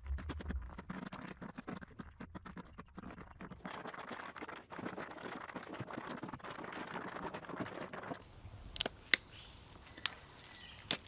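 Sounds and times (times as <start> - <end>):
stones and litter rustling: 5.9 - 11.0.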